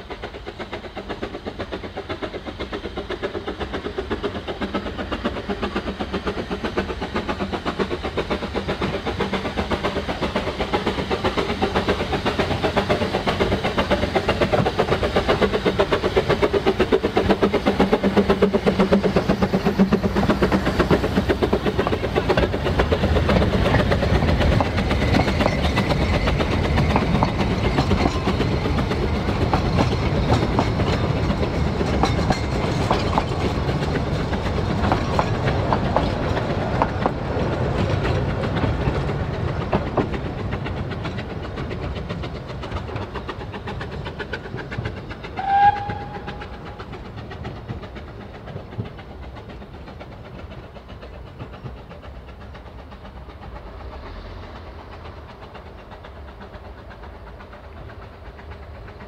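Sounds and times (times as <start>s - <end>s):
train carriages clattering over rails: 0.0s - 59.0s
locomotive whistle: 45.4s - 46.8s.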